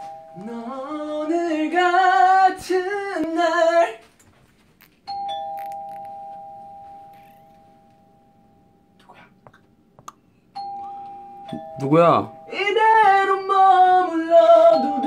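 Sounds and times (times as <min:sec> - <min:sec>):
doorbell chime: 0:00.0 - 0:01.6, 0:05.1 - 0:09.0, 0:10.6 - 0:15.0
two-tone chime: 0:05.1 - 0:09.0, 0:10.6 - 0:13.6
person singing: 0:12.5 - 0:15.0.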